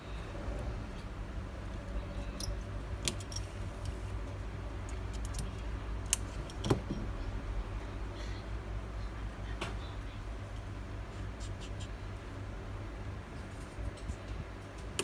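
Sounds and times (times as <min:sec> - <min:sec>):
steady low hum: 0:00.0 - 0:15.0
screwdriver and screws clicking on metal: 0:04.9 - 0:07.0.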